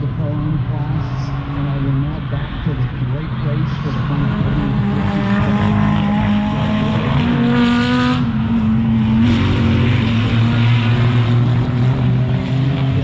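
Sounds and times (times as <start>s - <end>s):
race car engines passing: 0.0s - 13.0s.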